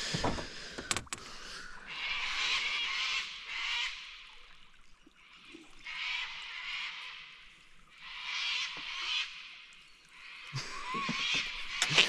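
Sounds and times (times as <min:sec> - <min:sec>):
sharp clicks: 0:00.3 - 0:01.3
screeching bird calls: 0:10.2 - 0:12.0.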